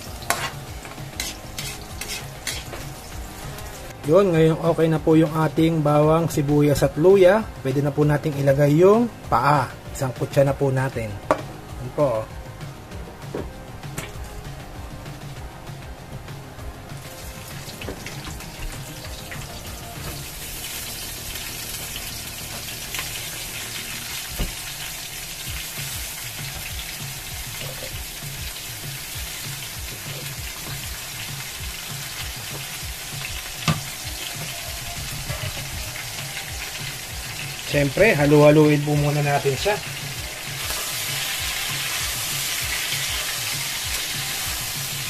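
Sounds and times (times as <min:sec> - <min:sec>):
food sizzling in hot oil: 0:00.0 - 0:04.9, 0:16.9 - 0:45.0.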